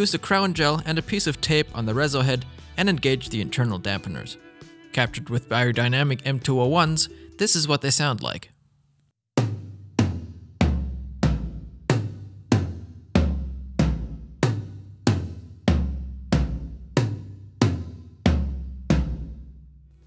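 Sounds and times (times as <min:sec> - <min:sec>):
tom-tom drum hits: 0:09.4 - 0:19.6.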